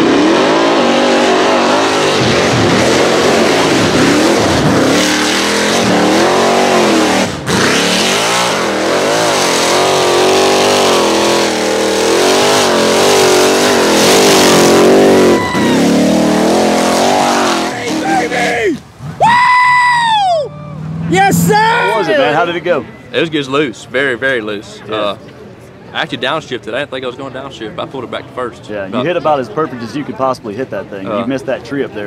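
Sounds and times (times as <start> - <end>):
buggy engine revving: 0.0 - 22.0.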